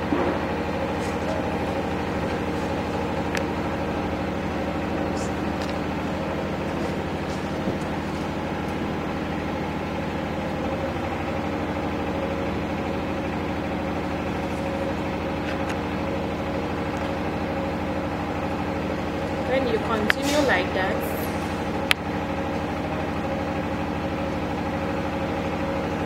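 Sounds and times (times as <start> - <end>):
machine hum: 0.0 - 26.0.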